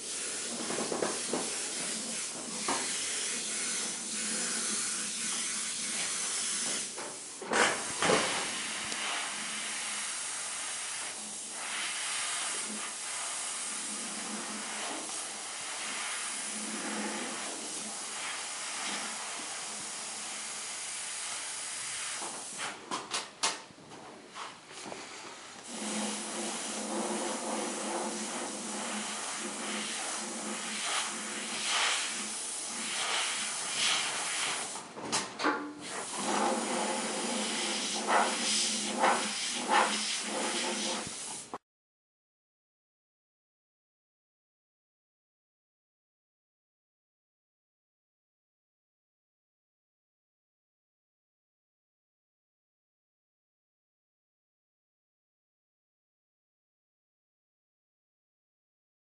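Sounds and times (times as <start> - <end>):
airbrush spraying hiss: 0.0 - 22.7, 25.6 - 34.8, 35.8 - 41.5.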